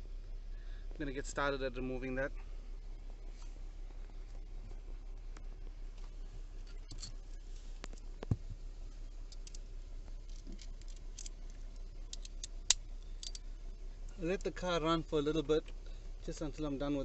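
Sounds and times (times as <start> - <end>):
car engine idling hum: 0.0 - 17.0.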